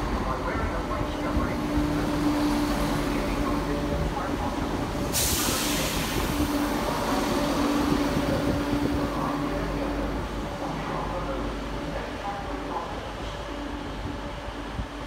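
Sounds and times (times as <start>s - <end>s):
diesel train engine humming: 0.0s - 15.0s
loud hiss: 4.8s - 8.4s.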